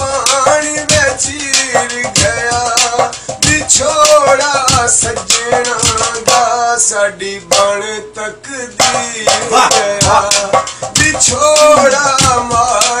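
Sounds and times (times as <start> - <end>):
man singing folk song: 0.0 - 13.0
hand drumming on metal pot: 8.8 - 13.0.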